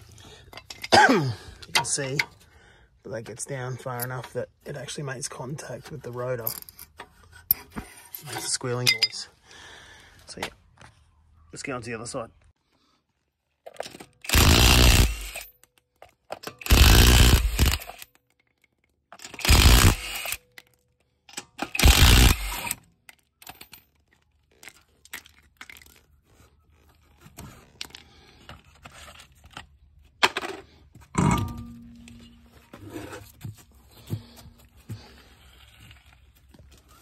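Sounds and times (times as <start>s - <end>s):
impact wrench hammering: 14.3s - 15.4s, 16.6s - 18.0s, 19.3s - 20.4s, 21.7s - 22.8s.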